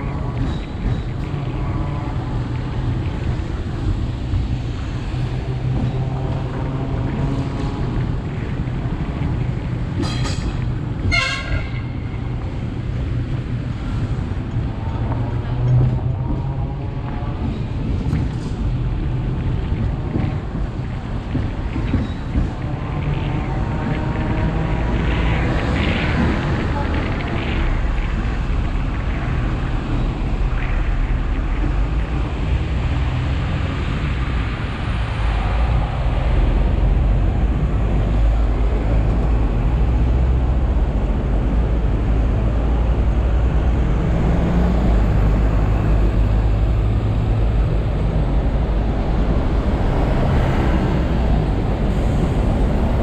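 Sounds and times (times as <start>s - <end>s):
buses and cars passing: 0.0s - 53.0s
electric tram rumbling: 0.0s - 53.0s.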